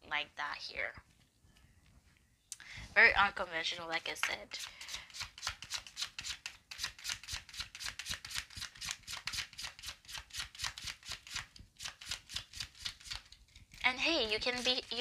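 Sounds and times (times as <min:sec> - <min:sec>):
cards being shuffled: 0:04.2 - 0:15.0.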